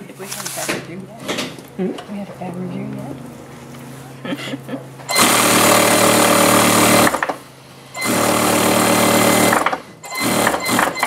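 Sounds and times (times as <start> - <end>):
sewing machine stitching: 5.1 - 7.4, 8.0 - 11.0.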